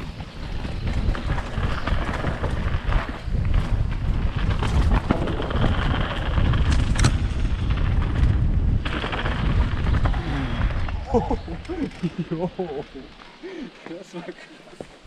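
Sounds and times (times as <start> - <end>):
bike knocking over bumps: 0.0 - 11.7
wind on microphone: 0.0 - 12.4
bike tyres rumbling on dirt: 0.0 - 13.6.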